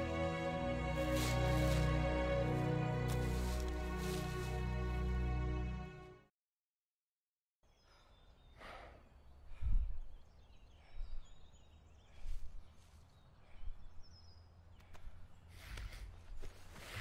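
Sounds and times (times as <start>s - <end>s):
breaths or sighs: 7.9s - 10.1s.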